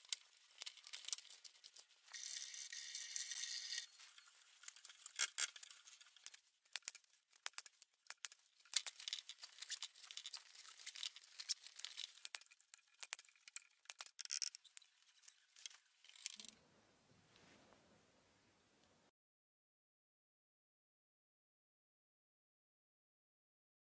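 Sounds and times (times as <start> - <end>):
strips crackling and rustling: 0.0 - 16.6
faint low hum: 15.9 - 19.1.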